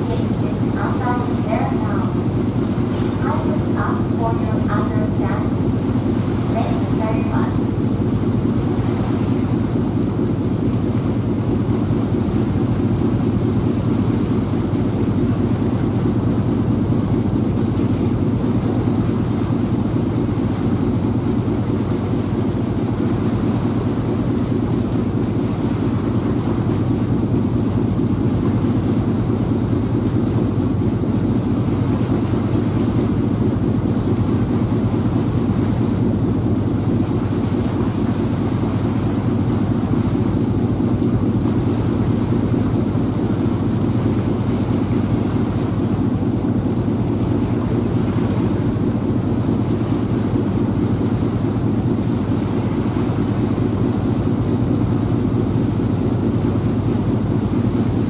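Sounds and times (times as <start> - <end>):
ferry engines droning: 0.0 - 2.2, 2.9 - 5.6, 6.4 - 7.6.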